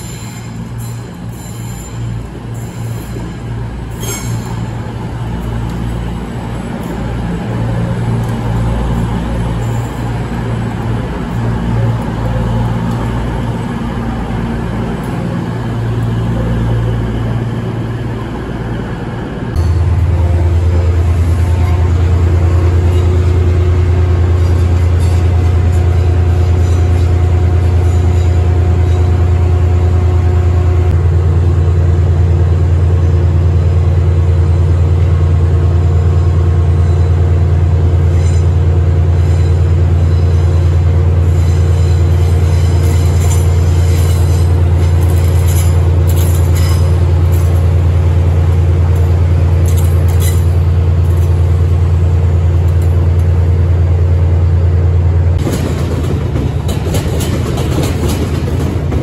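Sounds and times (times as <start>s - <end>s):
wheels squealing on rails: 0.0s - 19.8s, 21.0s - 30.8s, 36.1s - 51.7s
diesel train engine drone: 0.0s - 59.0s.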